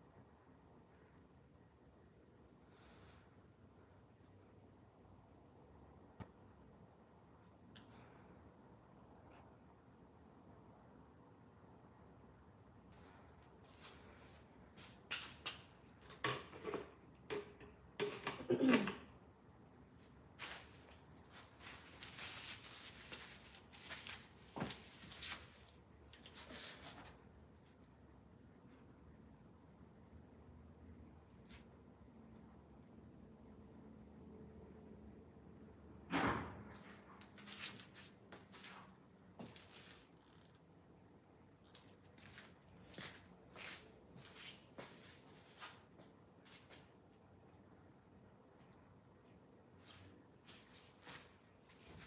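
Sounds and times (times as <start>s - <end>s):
footsteps: 12.9s - 15.8s, 20.0s - 27.1s, 41.7s - 46.9s, 49.8s - 52.0s
faint scuffs and rustles: 12.9s - 16.0s, 19.9s - 27.9s, 36.7s - 40.7s, 41.4s - 47.7s, 48.5s - 52.0s
clothing rustle: 19.9s - 27.3s.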